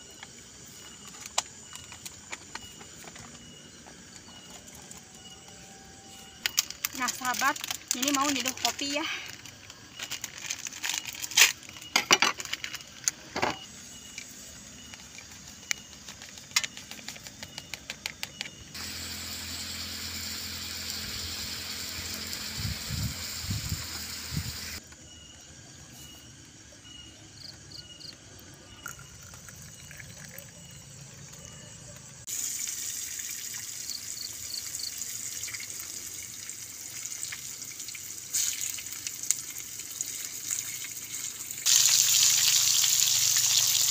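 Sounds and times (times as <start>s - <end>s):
sachet crinkling and clicking: 6.5s - 11.8s
hot water pouring: 18.8s - 24.8s, 28.8s - 30.6s, 32.3s - 43.9s
slices frying in oil: 18.8s - 24.8s, 32.3s - 43.9s.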